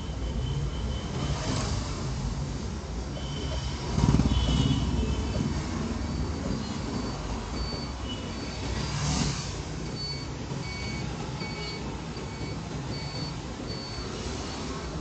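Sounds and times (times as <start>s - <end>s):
engine and traffic rumble: 0.0s - 15.0s
faint high-pitched beep: 6.1s - 8.8s, 9.9s - 14.8s.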